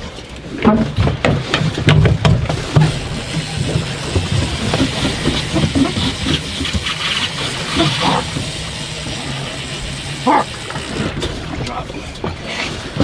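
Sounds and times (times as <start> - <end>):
boat engine hum: 0.0 - 13.0
water splashes: 0.0 - 13.0
wind and water hiss: 1.5 - 13.0.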